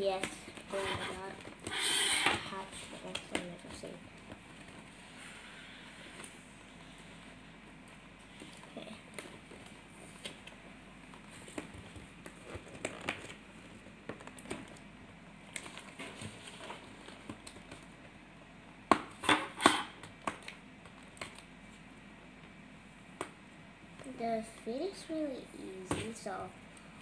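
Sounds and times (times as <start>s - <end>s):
plastic packaging crinkling: 11.2s - 14.9s.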